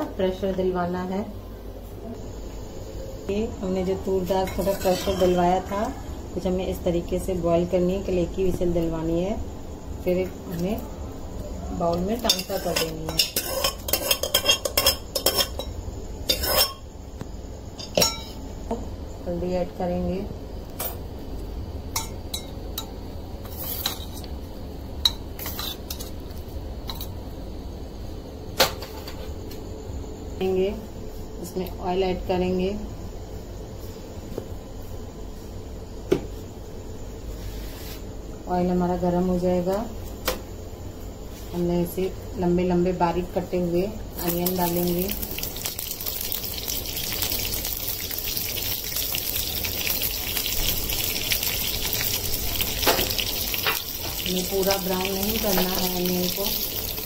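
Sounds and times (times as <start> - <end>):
onions sizzling in hot oil: 4.0 - 5.9, 11.8 - 17.1, 44.1 - 57.0.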